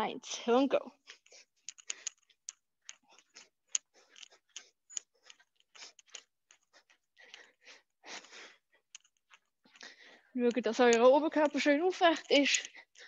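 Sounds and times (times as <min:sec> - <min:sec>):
wooden sticks tapping: 0:08.9 - 0:13.0.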